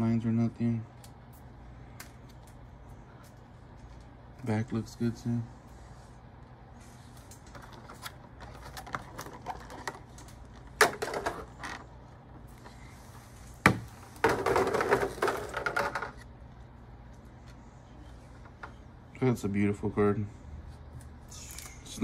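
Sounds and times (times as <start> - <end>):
crackling plastic rattle: 7.3 - 11.9.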